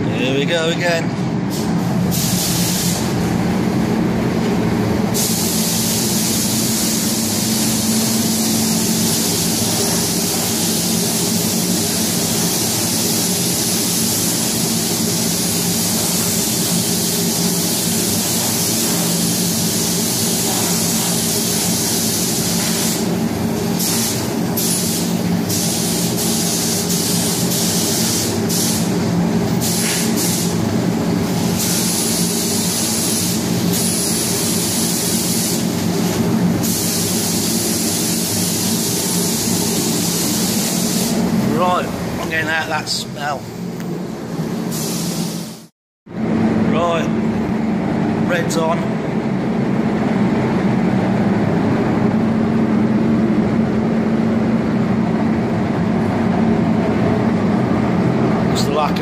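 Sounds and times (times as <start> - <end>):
low mechanical hum: 0.0 - 44.8, 45.5 - 59.0
spray gun hissing: 1.5 - 3.2, 5.2 - 29.0, 29.6 - 30.6, 31.2 - 41.4, 44.7 - 45.7.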